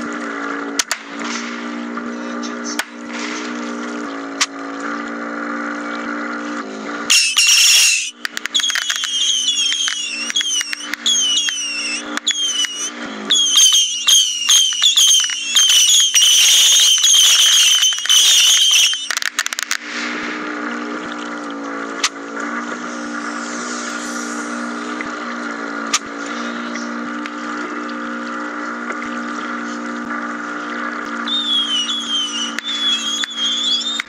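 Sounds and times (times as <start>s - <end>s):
model boat motor hum: 0.0s - 34.0s
shrill squeals: 7.1s - 19.1s, 31.3s - 34.0s.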